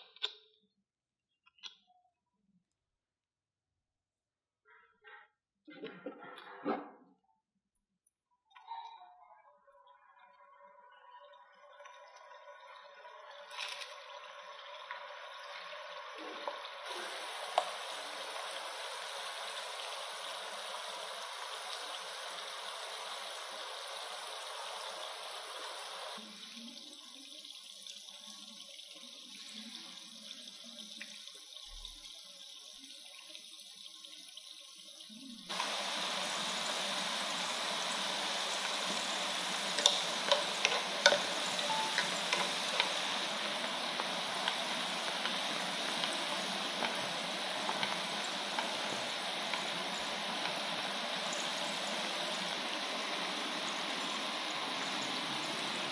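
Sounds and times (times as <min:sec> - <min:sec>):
food deep-frying in hot oil: 0:09.5 - 0:55.9
chopsticks clicking: 0:39.8 - 0:43.0.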